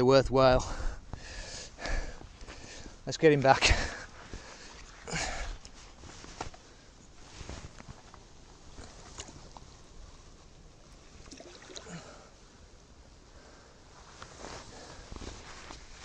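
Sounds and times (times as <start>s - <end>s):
clothing rustling: 4.0s - 11.8s, 13.9s - 16.0s
light water splashes: 10.8s - 12.3s.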